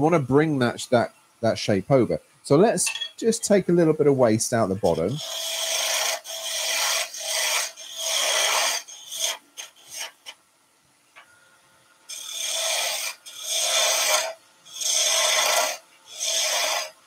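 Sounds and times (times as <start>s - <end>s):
lathe tool scraping wood: 4.9s - 10.3s, 12.1s - 17.0s.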